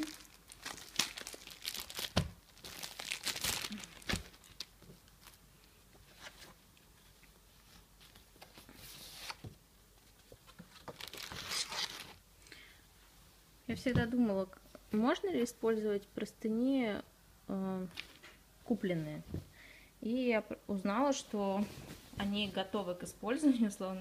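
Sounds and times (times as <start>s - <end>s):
plastic packaging crinkling and tearing: 0.0s - 5.4s, 10.7s - 12.2s.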